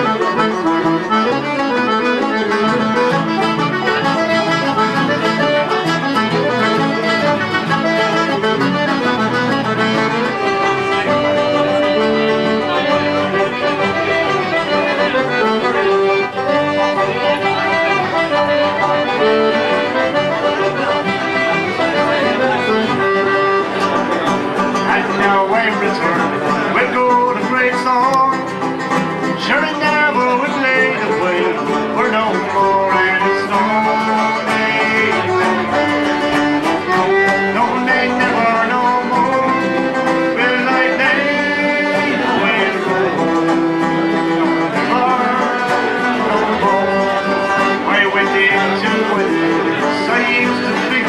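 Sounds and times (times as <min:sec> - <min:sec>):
banjo plucking a tune: 0:00.0 - 0:51.0.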